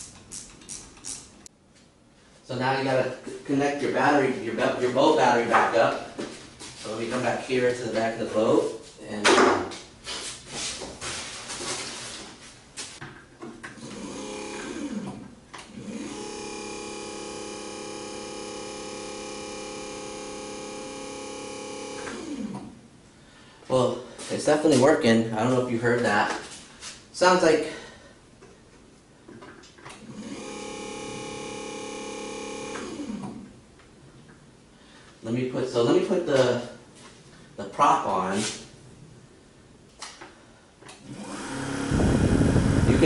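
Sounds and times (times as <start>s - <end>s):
electric motor humming: 13.8s - 15.2s, 15.8s - 22.5s, 30.0s - 33.4s, 41.1s - 43.0s.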